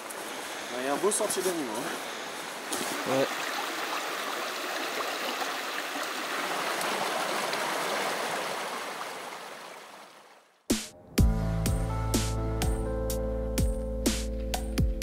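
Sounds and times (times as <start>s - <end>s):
creek rushing over stones: 0.1s - 10.6s.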